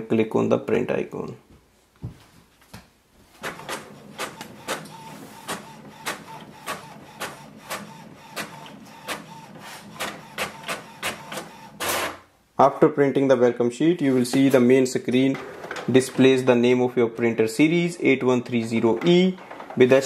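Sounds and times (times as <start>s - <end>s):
inkjet printer printing: 3.4s - 12.3s, 15.3s - 16.3s.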